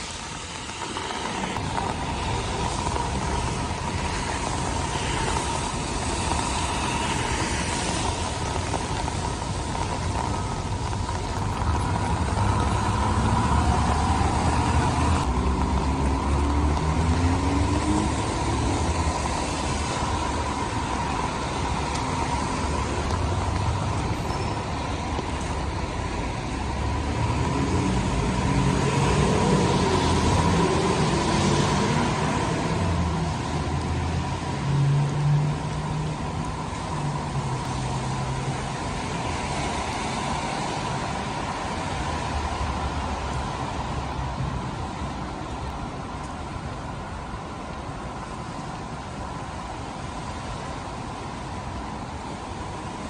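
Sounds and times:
rain and wet tyres hiss: 0:00.0 - 0:53.0
vehicle engines passing: 0:00.0 - 0:53.0.

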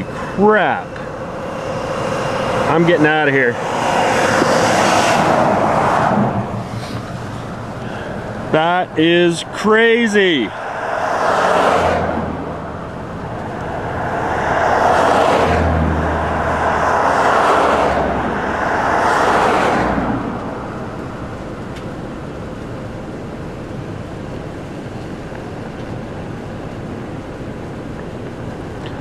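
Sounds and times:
vehicles whooshing past: 0:00.0 - 0:22.4
steady traffic rush: 0:00.0 - 0:29.0
truck rumble: 0:00.0 - 0:29.0.

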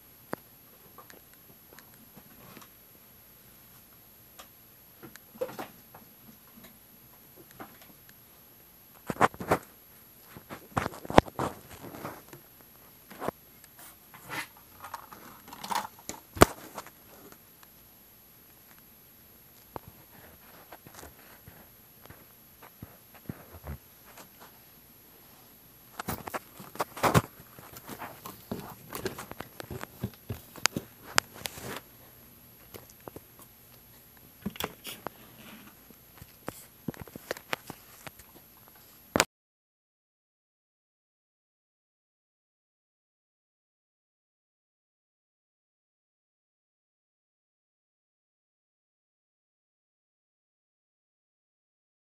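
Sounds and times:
rustling and scraping: 0:09.0 - 0:17.4, 0:19.7 - 0:32.1, 0:33.9 - 0:39.1.

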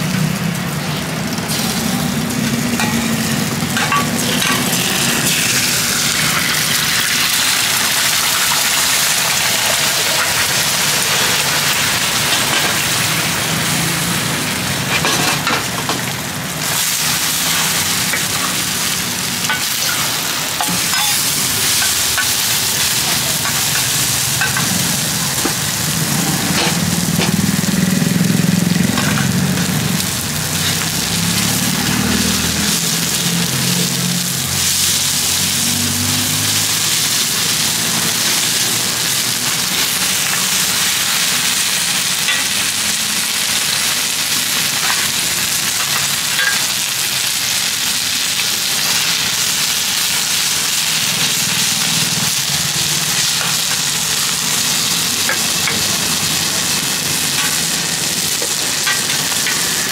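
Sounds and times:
omelettes sizzling in hot oil: 0:00.0 - 0:59.9.

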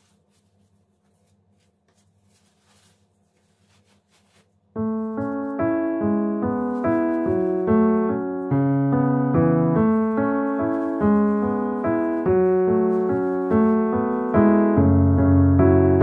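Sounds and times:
gentle piano melody: 0:03.5 - 0:16.0.

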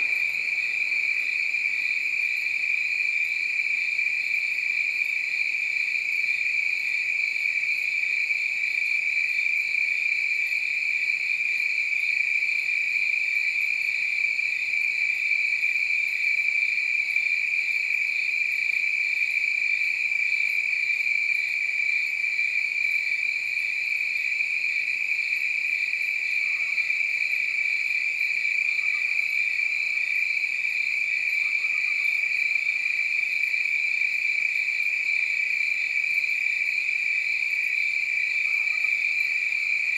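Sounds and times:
crickets chirring: 0:00.0 - 0:39.9.

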